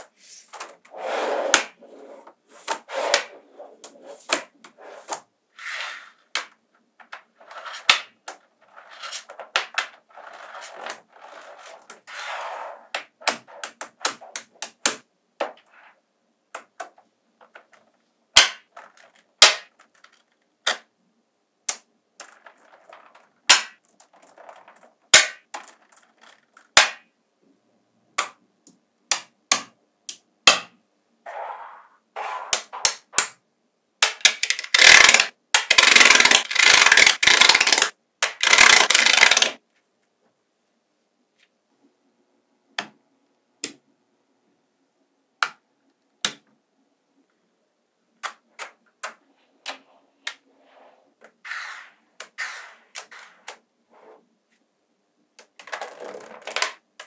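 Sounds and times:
magnetic balls clicking together: 0:34.0 - 0:39.6.

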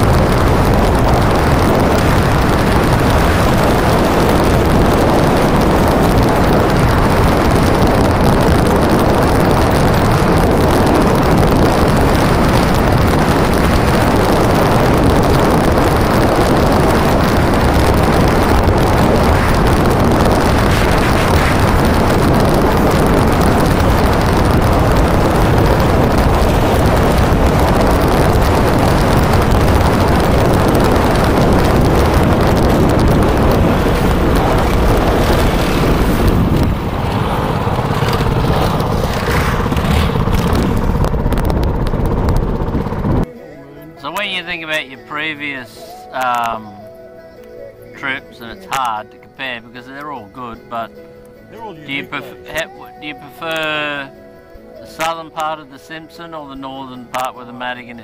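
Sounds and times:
motorcycle engine: 0:00.0 - 0:43.3
wind rushing on microphone: 0:00.0 - 0:43.3.

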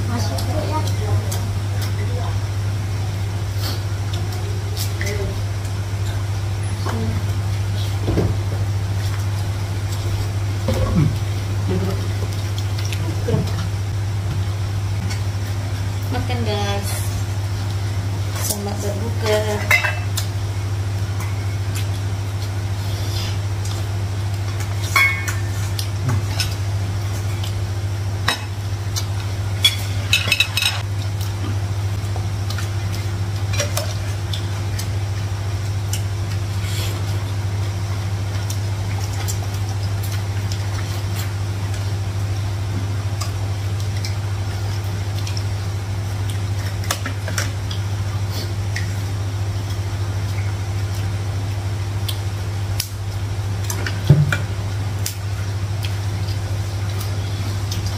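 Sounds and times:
steady low hum: 0:00.0 - 0:57.9
spoons clinking on plates: 0:19.6 - 0:20.2, 0:24.9 - 0:25.5, 0:29.6 - 0:30.8.

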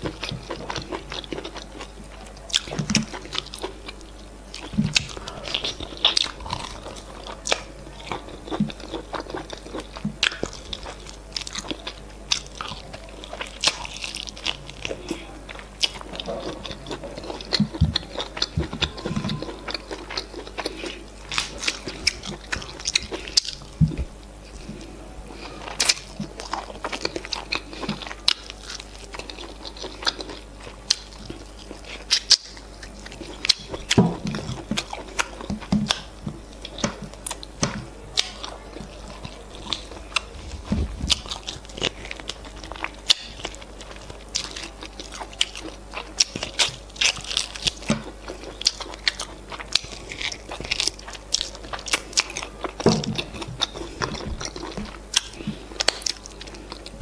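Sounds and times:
chewing and crunching: 0:00.0 - 0:57.0.

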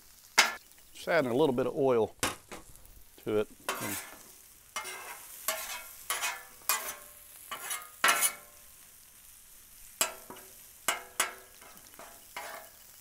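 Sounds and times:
oil sizzling: 0:00.0 - 0:13.0
metal spatulas scraping griddle: 0:03.7 - 0:08.6, 0:10.0 - 0:13.0.

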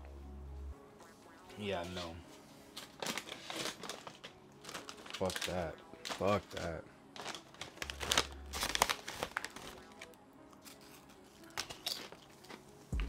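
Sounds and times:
plastic wrapper crinkling: 0:02.8 - 0:12.6.

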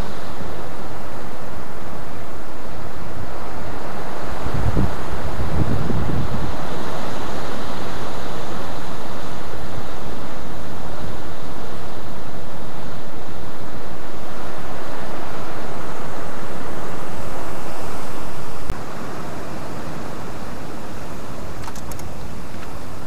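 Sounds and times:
wind buffeting microphone: 0:00.0 - 0:18.8
sea surf rushing: 0:00.0 - 0:23.0
click: 0:21.6 - 0:22.7.

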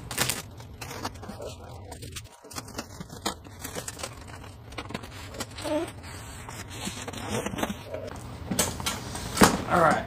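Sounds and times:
cardboard scraping and rustling: 0:00.1 - 0:08.1
cardboard squeaks: 0:03.1 - 0:08.1.

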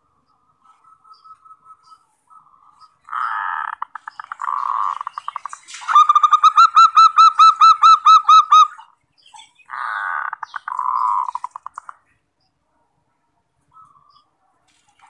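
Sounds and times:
dove trilling and cooing: 0:00.6 - 0:12.0.

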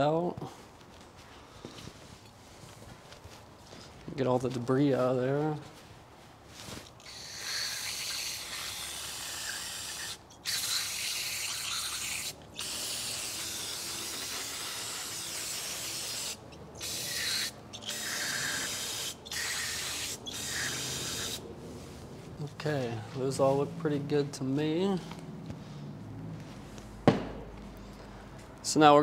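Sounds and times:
aerosol can spraying: 0:07.1 - 0:21.4.

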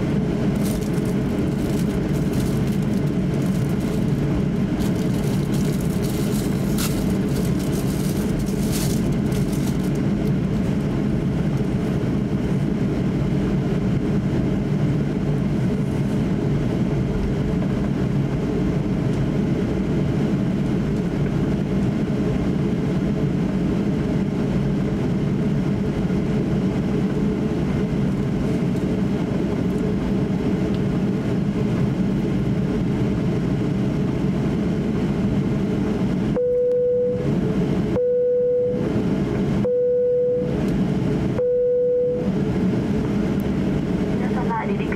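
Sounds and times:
jet engines droning in cabin: 0:00.0 - 0:44.9.

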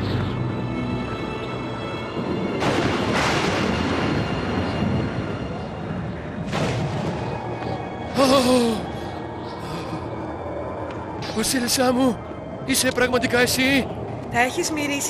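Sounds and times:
background music: 0:00.0 - 0:15.0
wind gusts rushing: 0:02.0 - 0:09.4.

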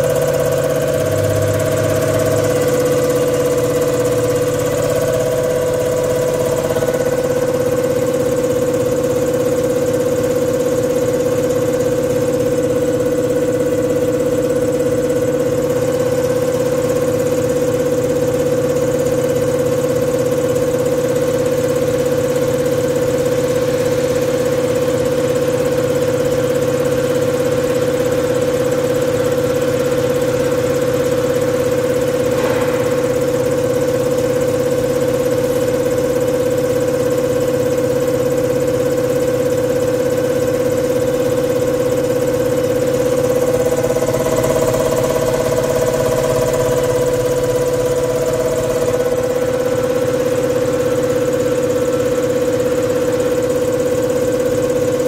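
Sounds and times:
mechanical drone: 0:00.0 - 0:10.0, 0:43.3 - 0:51.4
fast injector ticking: 0:00.0 - 0:19.3, 0:29.9 - 0:55.0.

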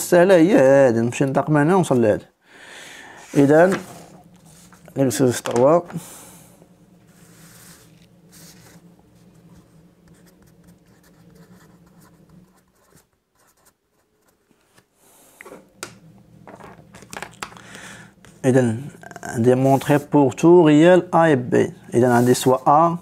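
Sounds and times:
faint low hum: 0:00.0 - 0:23.0
pen scratching on paper: 0:10.1 - 0:14.4.

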